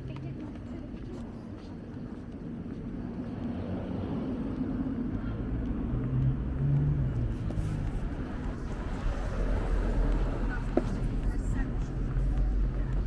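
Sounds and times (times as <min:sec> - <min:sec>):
low street background noise: 0:00.0 - 0:13.0
car engine hum: 0:03.3 - 0:13.0.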